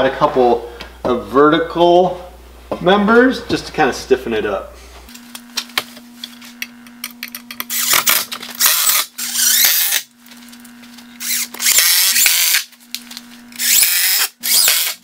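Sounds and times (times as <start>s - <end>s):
cordless drill running: 7.7s - 10.1s, 11.1s - 12.7s, 13.5s - 15.0s.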